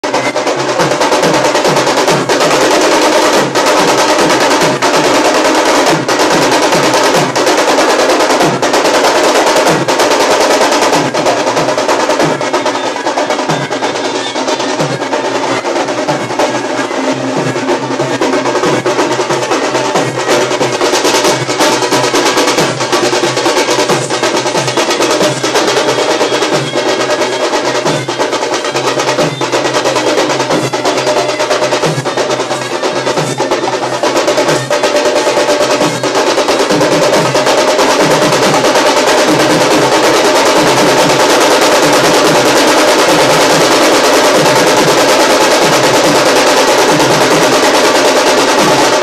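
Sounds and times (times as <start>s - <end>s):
barrel drums beaten with sticks: 0.0s - 49.0s.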